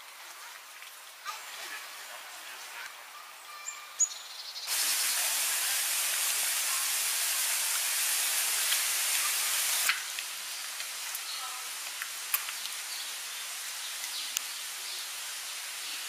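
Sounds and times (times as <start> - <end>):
running water hissing: 4.7 - 16.0.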